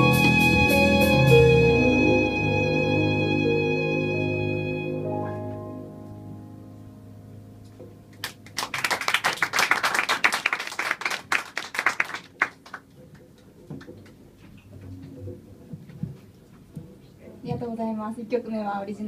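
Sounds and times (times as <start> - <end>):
violin and double bass note: 0.0 - 5.5
audience applauding: 8.1 - 12.9.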